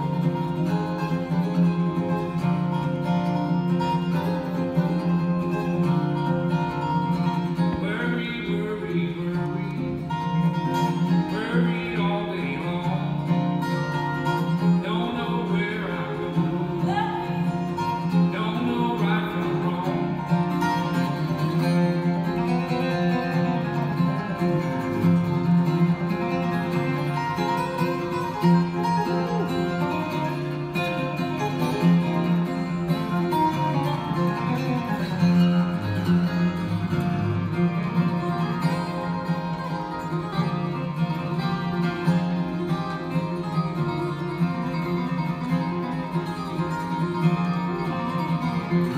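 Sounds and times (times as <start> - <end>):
acoustic guitars playing country: 0.0 - 48.9
person singing: 7.6 - 10.0, 11.2 - 13.3, 14.5 - 20.6.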